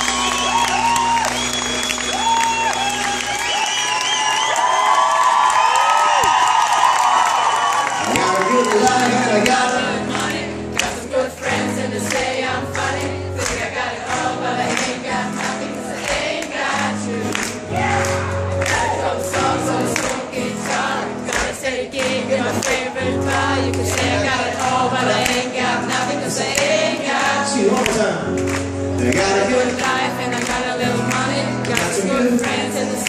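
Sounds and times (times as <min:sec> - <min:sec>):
live pop-rock song: 0:08.0 - 0:33.0
many voices singing together: 0:08.1 - 0:28.3, 0:28.9 - 0:33.0.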